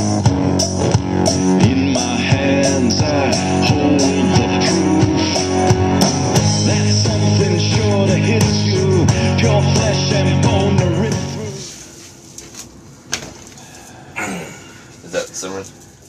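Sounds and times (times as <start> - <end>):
drum kit beat: 0.0 - 11.6
electric guitar bending notes: 0.0 - 11.6.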